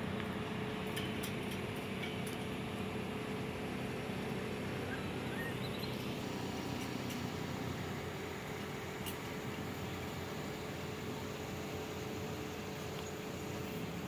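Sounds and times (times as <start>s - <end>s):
faint high chirps: 4.8s - 6.1s.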